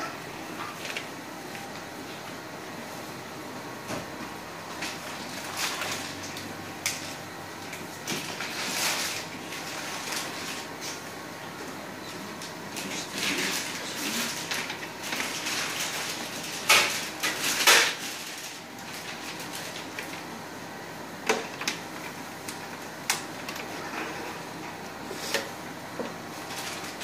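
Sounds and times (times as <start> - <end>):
plastic tubing rustling: 8.0 - 10.8, 12.8 - 20.2.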